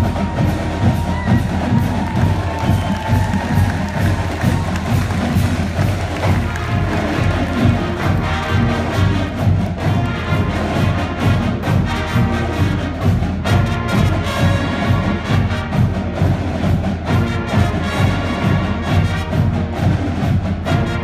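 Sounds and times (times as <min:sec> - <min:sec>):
bass drum beat: 0:00.0 - 0:21.0
marching band playing: 0:00.0 - 0:21.0.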